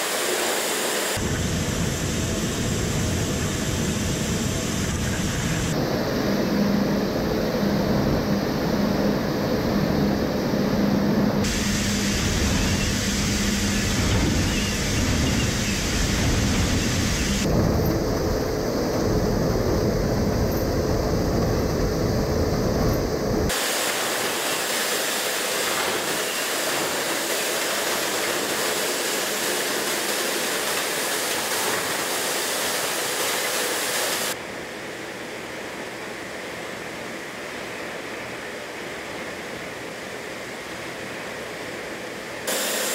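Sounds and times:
even hiss: 11.4s - 34.4s, 42.4s - 42.9s.

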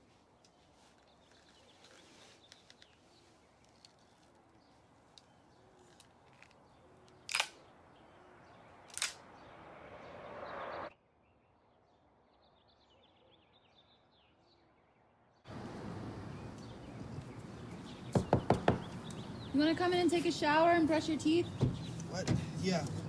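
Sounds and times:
outdoor ambience: 0.0s - 23.0s
sharp clicks: 6.0s - 7.6s, 8.9s - 9.3s.

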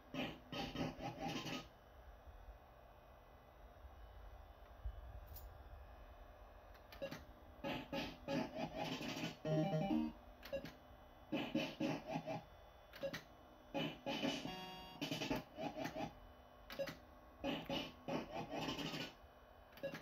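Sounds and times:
fruit machine beeps and jingles: 9.5s - 10.7s.

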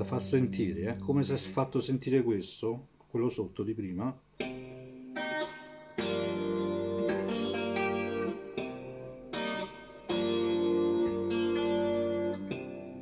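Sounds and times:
clean electric guitar: 0.0s - 2.2s, 4.4s - 13.0s
bass notes: 0.0s - 2.3s.

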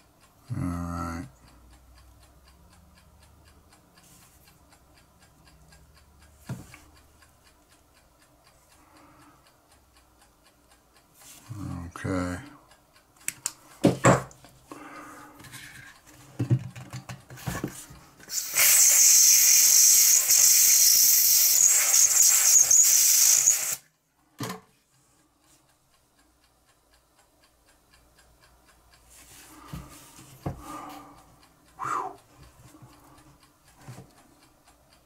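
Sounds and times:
pressurised gas hissing: 18.3s - 23.8s.

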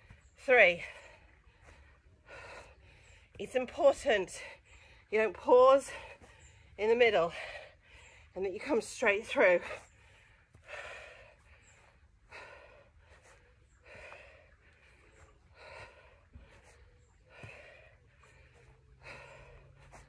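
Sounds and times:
woman breathing hard: 0.8s - 3.4s, 9.6s - 20.0s.

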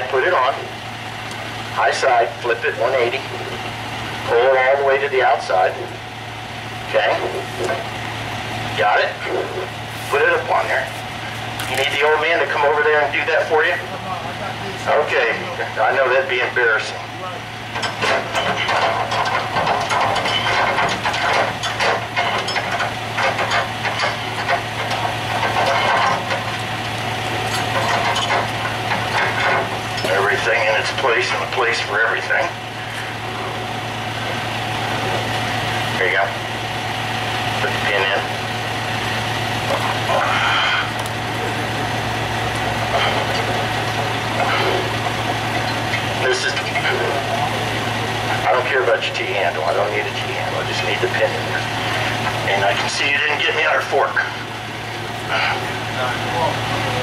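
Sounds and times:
engine idling: 0.0s - 57.0s
steel parts knocking and clanking: 17.7s - 26.6s, 27.4s - 31.1s.

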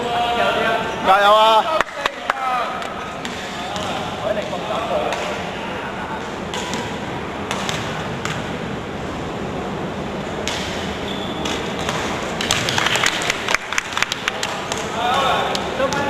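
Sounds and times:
basketball gym noise: 0.0s - 16.0s.

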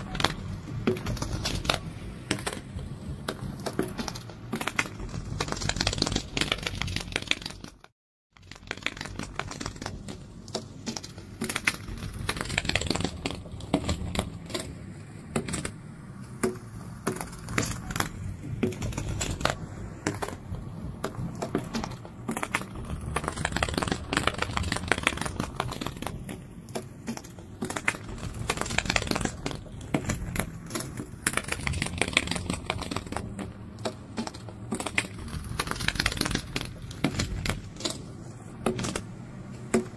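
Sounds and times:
dense irregular clicking and rustling: 0.0s - 39.9s
low rumble: 11.8s - 26.7s.

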